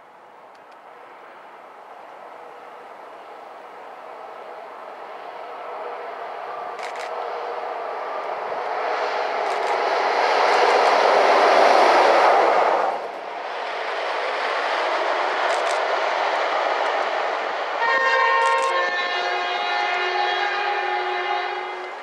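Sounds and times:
electric locomotive running: 0:00.5 - 0:22.0
locomotive horn blast: 0:04.1 - 0:08.8, 0:17.8 - 0:22.0.

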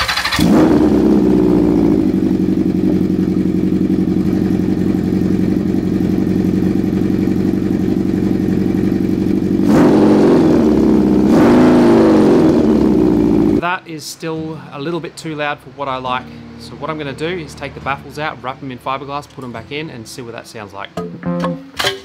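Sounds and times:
motorcycle engine revving: 0:00.0 - 0:13.6
motorcycle engine idling: 0:00.8 - 0:11.4, 0:12.2 - 0:13.6.

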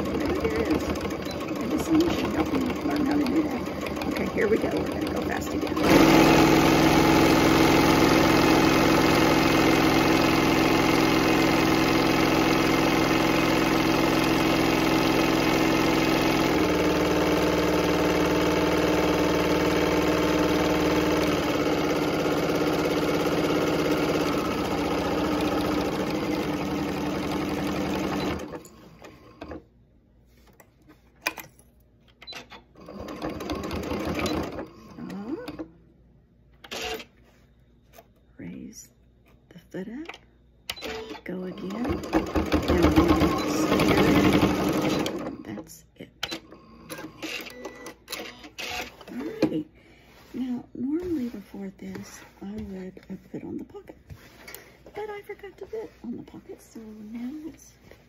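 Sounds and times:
sewing machine stitching: 0:00.0 - 0:29.6, 0:32.2 - 0:35.7, 0:36.6 - 0:37.1, 0:40.7 - 0:45.6, 0:46.2 - 0:50.4.

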